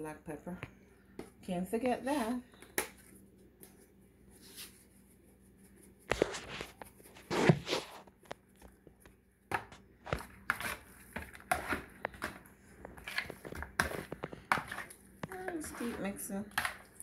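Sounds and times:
fork working in a bowl: 10.1 - 17.0.

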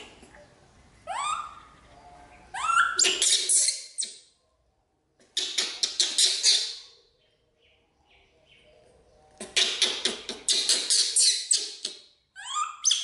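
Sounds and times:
baby monkey squeaky cries: 1.1 - 1.7, 2.5 - 4.2, 10.6 - 11.8, 12.4 - 13.0.

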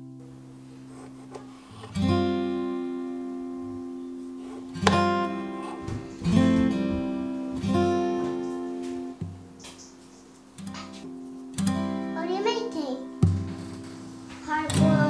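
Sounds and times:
acoustic guitar chords strummed: 0.0 - 15.0.

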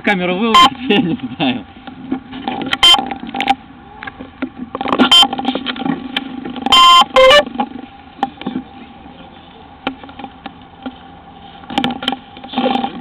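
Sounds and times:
steady low hum: 0.0 - 13.0
short electronic beeps: 0.5 - 0.8, 2.8 - 3.0, 5.0 - 5.3, 6.7 - 7.5.

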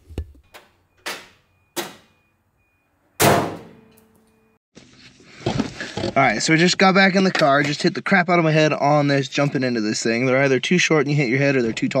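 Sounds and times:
metallic clang ringing: 3.2 - 4.3.

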